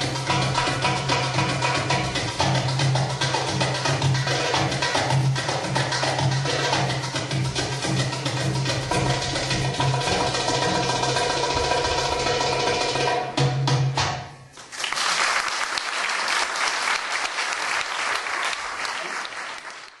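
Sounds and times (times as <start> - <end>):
goblet drum solo: 0.0 - 14.4
sustained backing music: 0.0 - 14.6
audience applause: 14.6 - 20.0.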